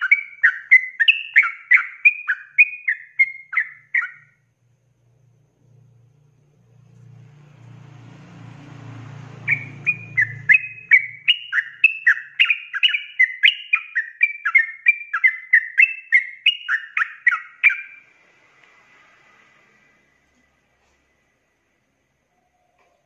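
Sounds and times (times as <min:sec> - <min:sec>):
bird singing rapid whistled notes: 0:00.0 - 0:04.4, 0:09.3 - 0:18.1.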